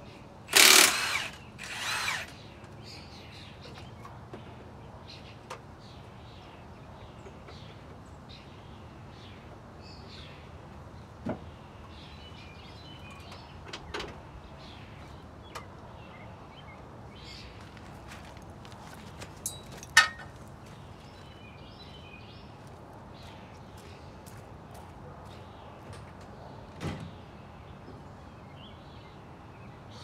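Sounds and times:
small birds chirping: 0:01.1 - 0:19.1
tools clinking on metal: 0:19.4 - 0:20.3.

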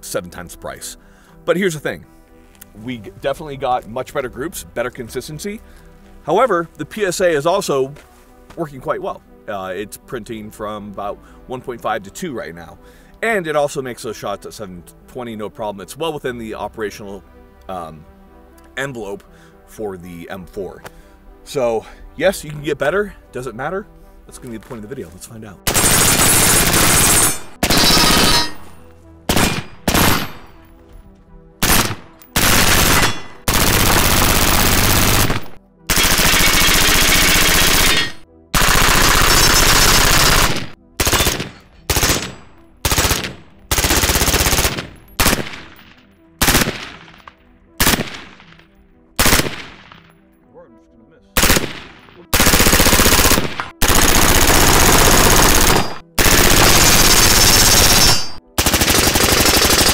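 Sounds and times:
rifle firing rapid shots: 0:25.7 - 0:28.6, 0:29.3 - 0:30.5, 0:31.6 - 0:48.6, 0:49.2 - 0:50.0, 0:51.4 - 0:59.9
single gunshots echoing: 0:44.8 - 0:48.7, 0:49.3 - 0:50.2, 0:51.4 - 0:52.4.

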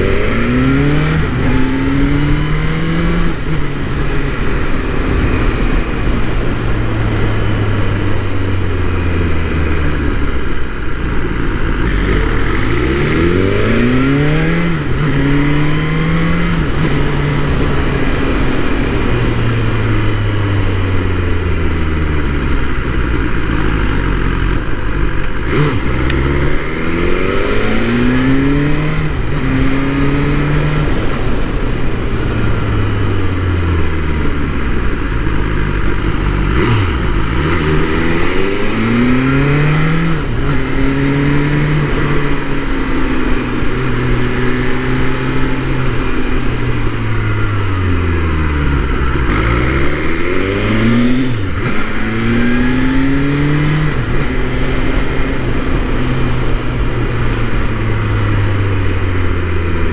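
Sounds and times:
motorcycle engine shifting gears: 0:00.0 - 0:59.9.

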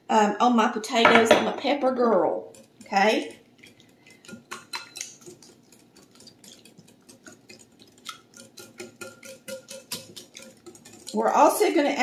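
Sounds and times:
whisk clinking against glass bowl: 0:02.5 - 0:12.0.

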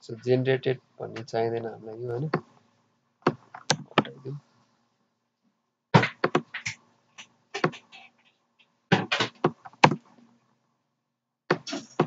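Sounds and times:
keyboard keystrokes: 0:03.3 - 0:04.2.

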